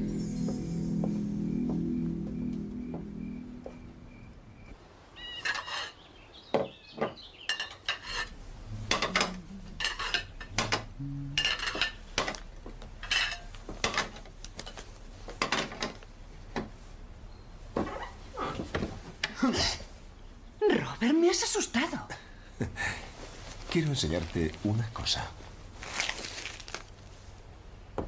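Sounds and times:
crockery and cutlery clinking: 7.0 - 14.8.

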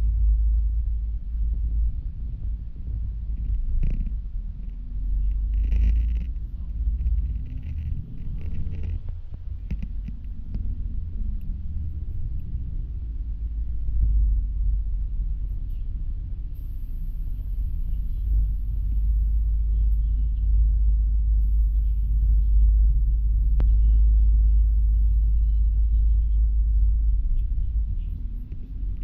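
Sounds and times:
bus rumbling in motion: 0.0 - 29.0.

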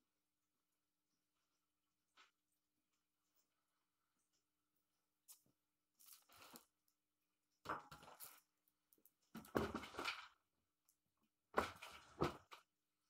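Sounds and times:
rustling and handling noises: 5.2 - 7.0.

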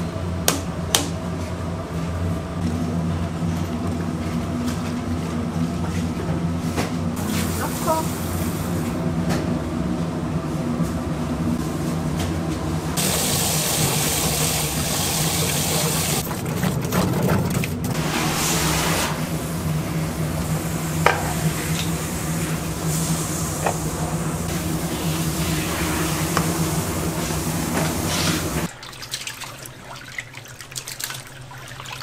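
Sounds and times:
pot boiling and bubbling: 12.8 - 32.0.

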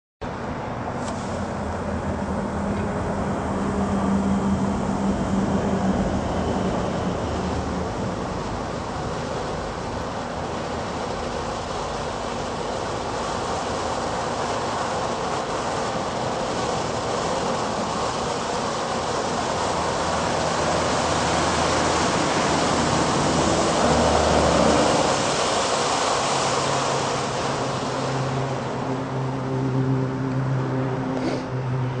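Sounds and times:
fountain firework hissing: 0.9 - 29.5.

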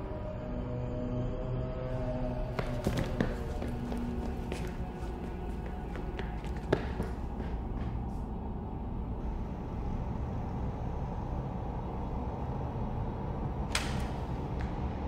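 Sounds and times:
steady low rumble: 1.6 - 15.0.

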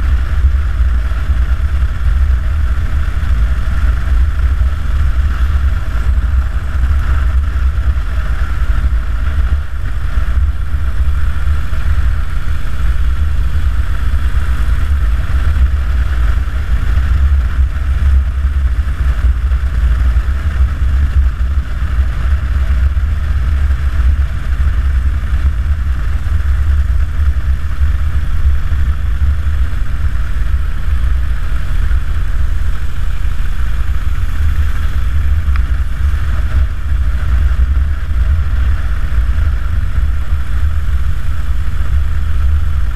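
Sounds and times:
motorcycle engine rumble: 0.0 - 42.9
wind noise: 0.0 - 42.9.

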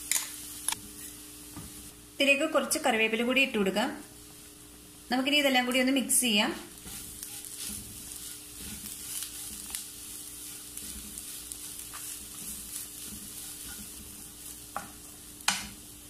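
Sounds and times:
frying sizzle: 0.0 - 16.0
wooden spatula scraping a pan: 6.2 - 15.9.

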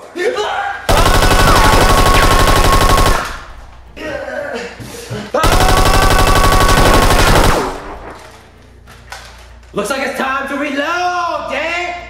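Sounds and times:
machine-gun automatic fire: 0.9 - 3.7, 5.4 - 8.5.

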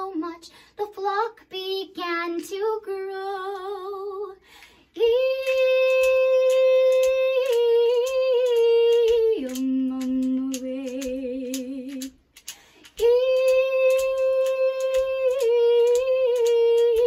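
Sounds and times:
woman singing without words: 0.0 - 17.0
hand shaker beat: 5.0 - 17.0.

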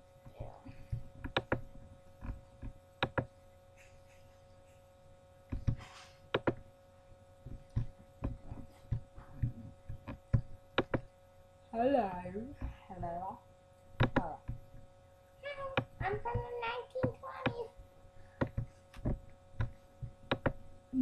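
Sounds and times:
steady electrical hum: 0.0 - 21.0
soft knocks and sharp clicks: 0.9 - 3.3, 5.5 - 6.6, 7.5 - 11.1, 14.0 - 14.8, 18.4 - 20.6.

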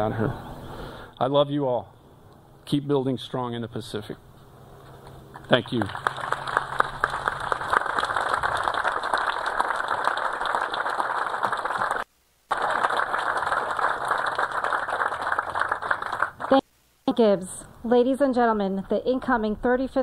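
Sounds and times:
audience applauding: 5.4 - 16.6.

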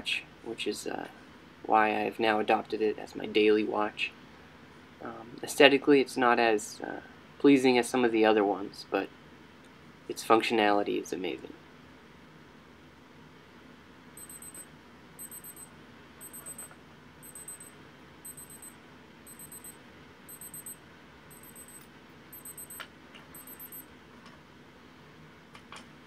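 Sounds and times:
rapid high-pitched beeping: 14.2 - 17.7, 18.3 - 22.8, 23.4 - 23.9.

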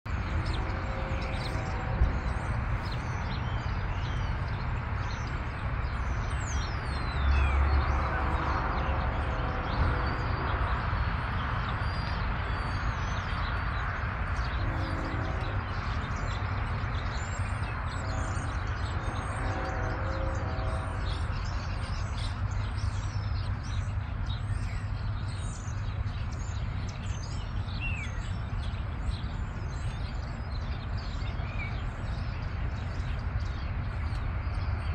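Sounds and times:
distant locomotive horn: 0.1 - 25.3.

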